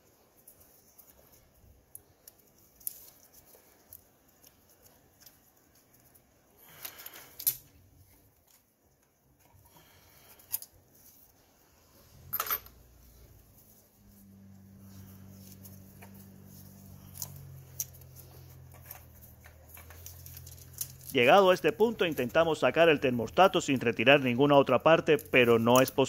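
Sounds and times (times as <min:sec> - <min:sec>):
light clicks and rustles: 0:12.6 - 0:21.2.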